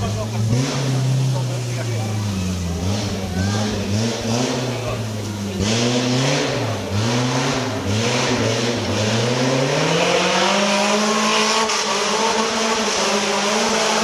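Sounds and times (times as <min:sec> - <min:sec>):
engine revving: 0:00.0 - 0:14.0.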